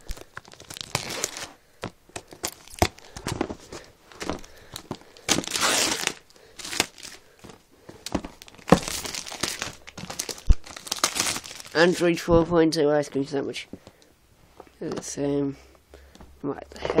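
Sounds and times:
plastic wrapping crinkling: 0:00.0 - 0:12.2.

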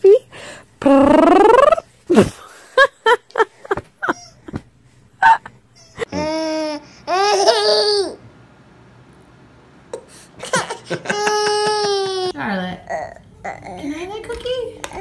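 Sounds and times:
baby vocalizing: 0:05.8 - 0:07.6.

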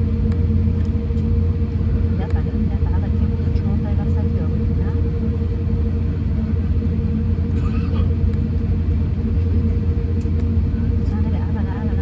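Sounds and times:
aircraft engines idling: 0:00.0 - 0:12.0
cabin air running: 0:00.0 - 0:12.0.

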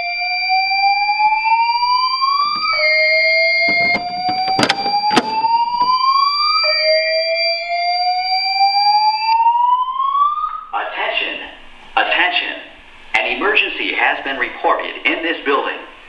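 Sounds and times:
fire alarm whoop tone: 0:00.0 - 0:10.7
steady high alarm tone: 0:00.0 - 0:10.7
sharp clicks of pull station: 0:03.6 - 0:06.0.

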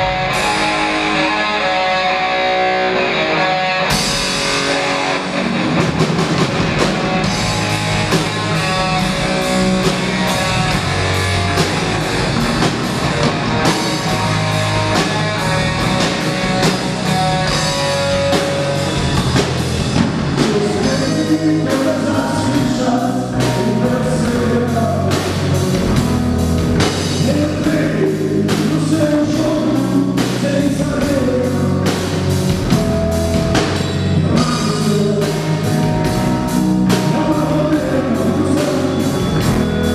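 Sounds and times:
distorted electric guitars: 0:00.0 - 0:39.9
drum kit: 0:00.0 - 0:39.9
man singing: 0:20.3 - 0:25.7, 0:27.0 - 0:32.3, 0:34.2 - 0:39.9.

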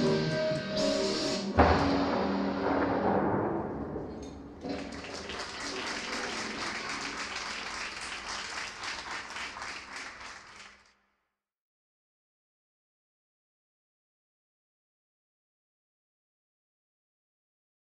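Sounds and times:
audience applause: 0:04.6 - 0:10.9.

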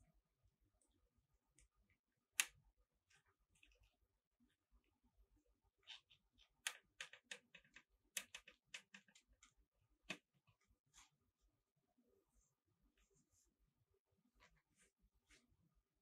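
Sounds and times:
nursing kittens clicking and smacking: 0:05.7 - 0:10.6.

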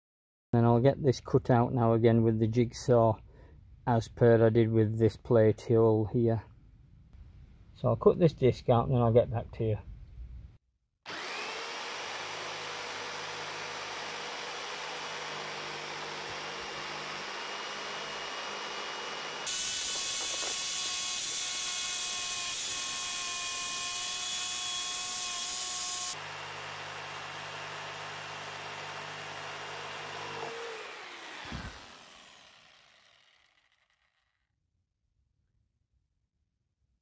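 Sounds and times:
motor winding down whine: 0:11.1 - 0:34.2
jigsaw cutting plywood: 0:11.1 - 0:34.4.

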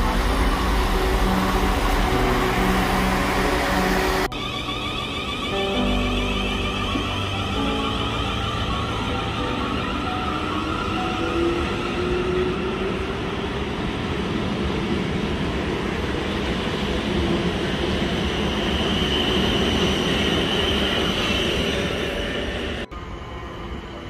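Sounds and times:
train wheels rumbling on rails: 0:00.0 - 0:22.9
faint high whine: 0:18.5 - 0:24.0.

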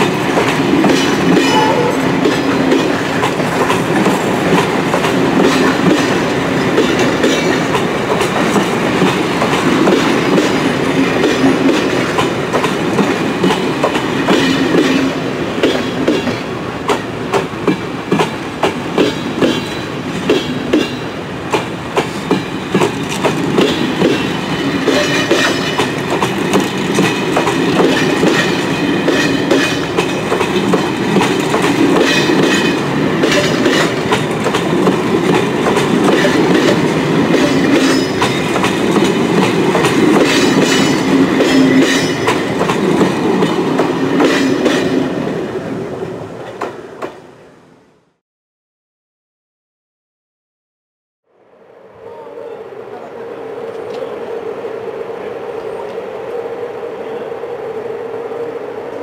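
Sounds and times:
train wheels clattering over rails: 0:00.0 - 0:45.3.

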